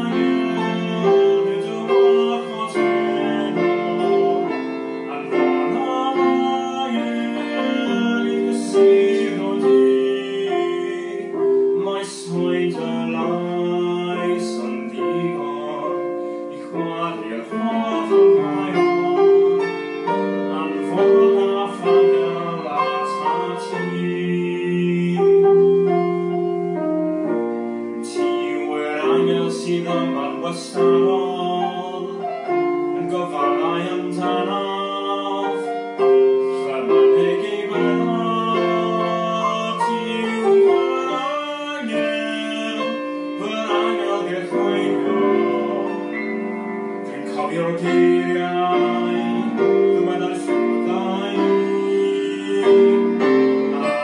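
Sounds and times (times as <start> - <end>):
piano music on keyboard: 0.0 - 54.0.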